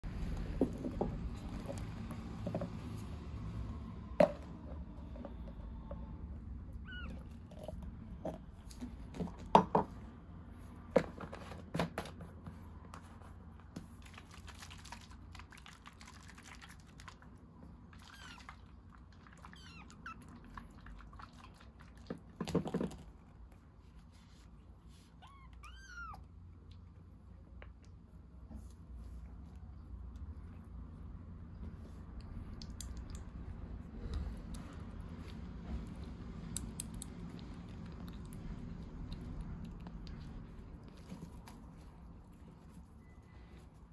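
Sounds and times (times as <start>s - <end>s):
kitten mewing: 6.7s - 7.7s, 25.2s - 26.3s.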